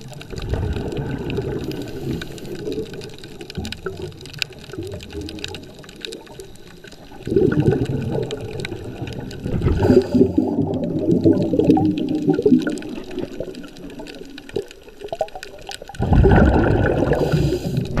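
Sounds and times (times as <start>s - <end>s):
underwater exhalation bubbles: 0.0s - 6.4s, 7.1s - 18.0s.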